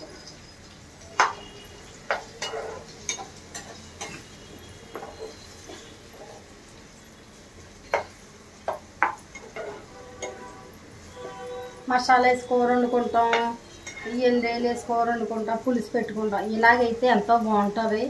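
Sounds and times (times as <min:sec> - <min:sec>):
faint sizzle: 0:00.0 - 0:18.0
spoon scraping a pan: 0:01.2 - 0:06.6, 0:07.8 - 0:11.8, 0:12.8 - 0:14.4
spoon clinking against pan: 0:02.1 - 0:04.3, 0:13.3 - 0:14.2.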